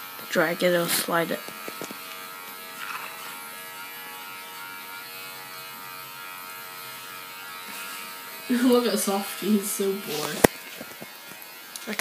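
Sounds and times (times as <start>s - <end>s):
electric hair clippers buzzing: 0.0s - 12.0s.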